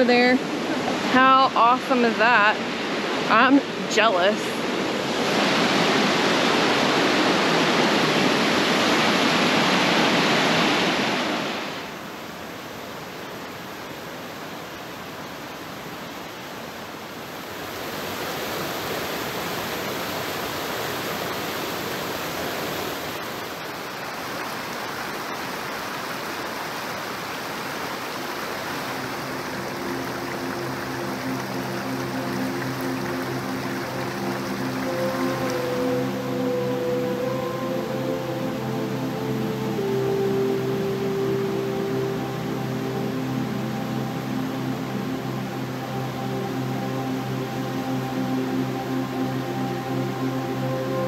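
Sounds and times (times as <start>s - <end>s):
waterfall roaring over rocks: 0.0s - 51.0s
faint music: 28.2s - 51.0s.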